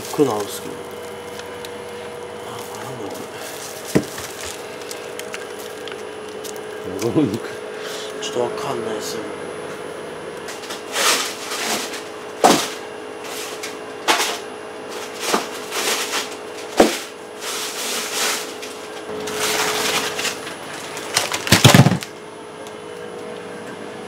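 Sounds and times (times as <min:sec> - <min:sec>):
frozen blocks knocking: 0:00.0 - 0:06.6, 0:21.0 - 0:22.1
plastic wrap rustling: 0:00.0 - 0:07.1, 0:14.9 - 0:22.2
freezer hum: 0:00.0 - 0:24.0.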